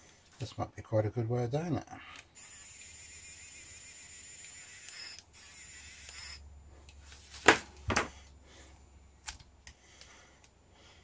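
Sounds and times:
pen motor whirring: 2.4s - 6.4s.

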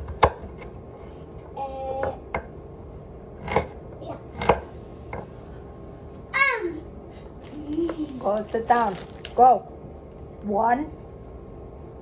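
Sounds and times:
knife chopping carrots on wood: 0.0s - 0.7s, 3.4s - 4.7s.

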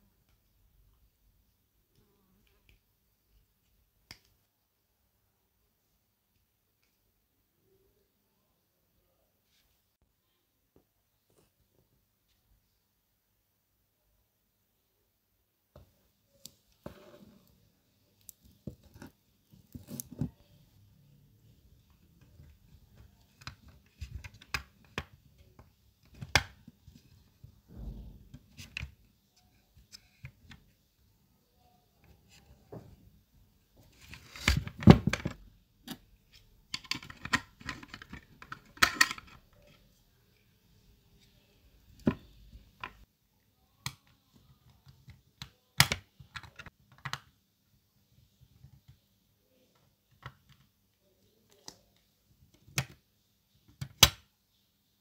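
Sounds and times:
plastic parts clicking and tapping: 36.7s - 39.8s.

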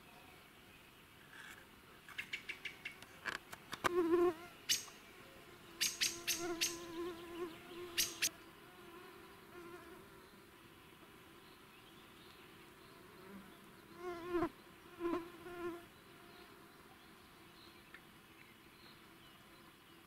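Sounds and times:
flying insect buzzing: 3.8s - 5.0s, 5.6s - 11.4s, 12.8s - 16.7s.

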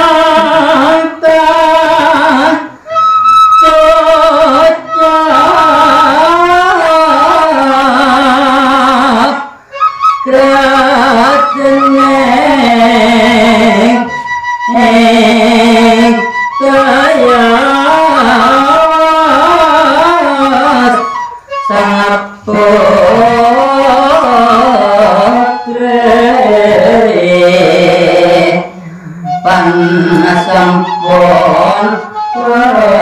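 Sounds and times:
bamboo flute: 1.8s - 7.6s, 9.5s - 27.9s, 28.6s - 33.0s
man singing held notes: 10.2s - 33.0s.

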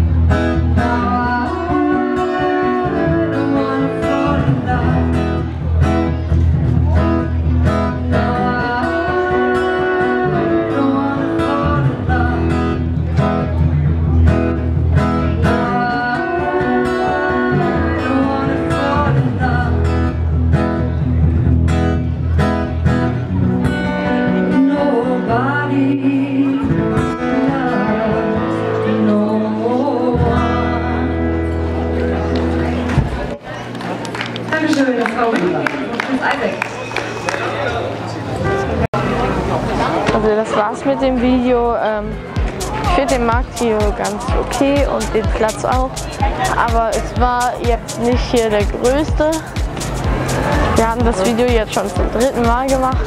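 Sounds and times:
acoustic guitar: 0.0s - 53.0s
woman singing into a microphone: 0.8s - 5.4s, 8.1s - 12.9s, 15.4s - 20.1s, 24.1s - 31.4s
steady low notes: 41.1s - 53.0s.

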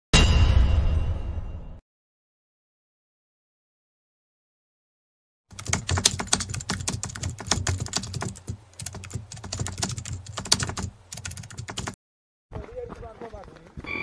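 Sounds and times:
keyboard typing clicks: 5.5s - 12.0s.

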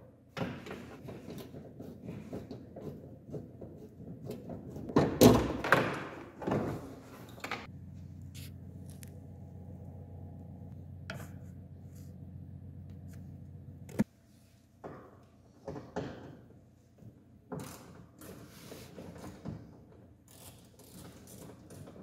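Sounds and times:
steady low hum: 7.6s - 14.8s.

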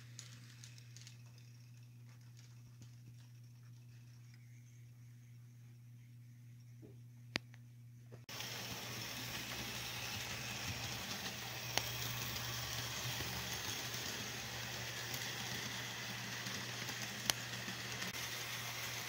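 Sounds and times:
model train rolling on track: 0.0s - 4.3s, 8.3s - 19.0s
low hum: 0.0s - 19.0s.

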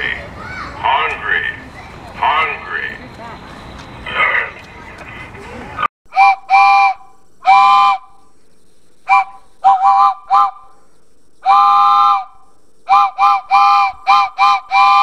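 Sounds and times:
steam locomotive chime whistle: 6.1s - 8.1s, 12.9s - 15.0s.

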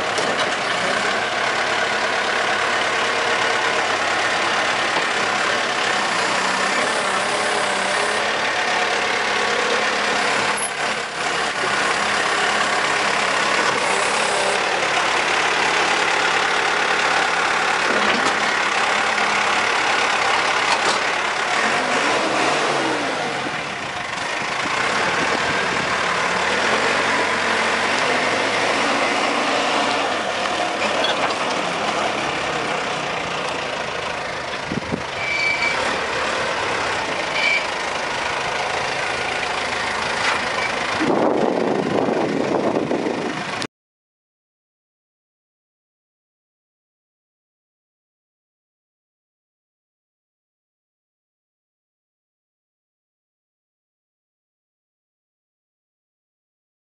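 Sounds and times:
diesel engine running: 0.0s - 43.7s.

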